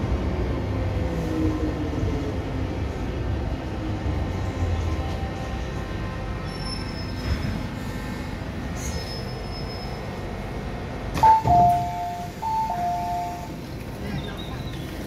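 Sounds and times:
train rumbling into station: 0.0s - 15.0s
wheel squeals: 6.4s - 7.4s, 8.8s - 10.1s
door chime: 11.2s - 13.4s.

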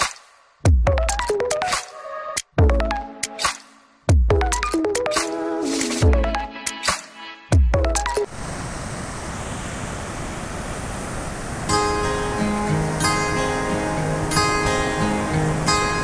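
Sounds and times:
waves breaking on beach: 8.3s - 16.0s
strummed acoustic guitar: 11.7s - 16.0s.

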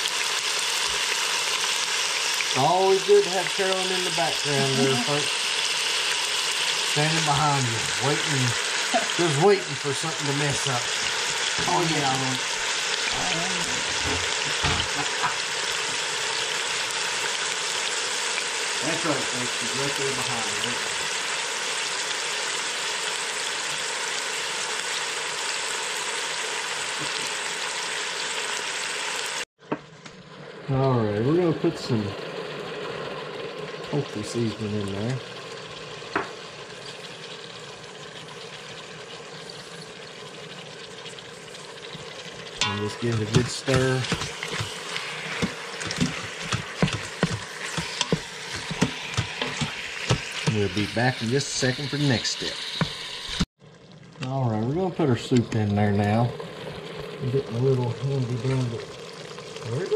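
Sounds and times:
chicken sizzling in oil: 0.0s - 59.9s
wooden spoon scraping a metal pot: 42.5s - 51.0s.

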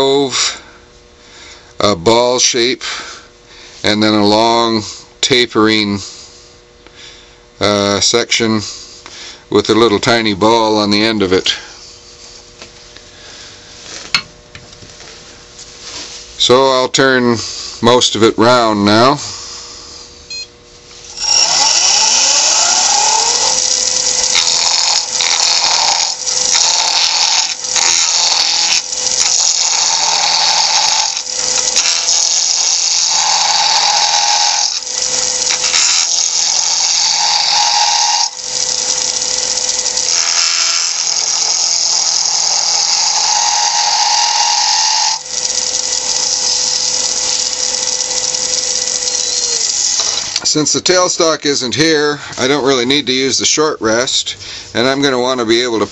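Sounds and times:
wood lathe motor whine: 20.9s - 51.5s
chisel rasping on wood: 21.2s - 34.8s, 35.4s - 38.3s, 40.0s - 45.2s.

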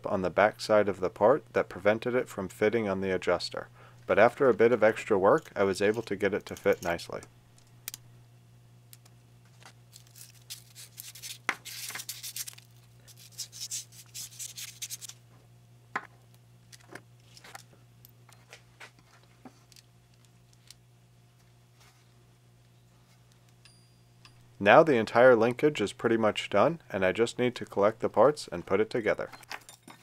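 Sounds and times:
steady low hum: 0.0s - 30.0s
metal parts scraping and rubbing: 9.6s - 15.2s.

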